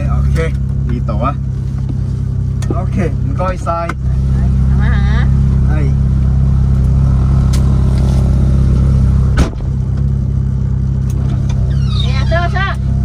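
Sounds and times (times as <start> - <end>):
car engine idling: 0.0 - 13.0
car door slamming: 9.2 - 10.1.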